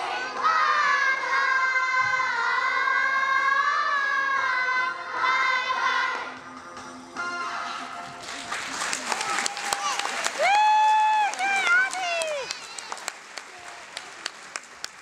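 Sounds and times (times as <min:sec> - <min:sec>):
girls singing in unison: 0:00.0 - 0:06.4.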